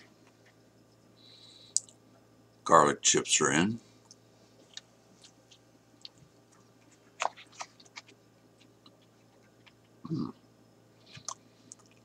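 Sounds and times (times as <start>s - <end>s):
man chewing crunchy food: 4.1s - 10.4s, 11.0s - 12.0s.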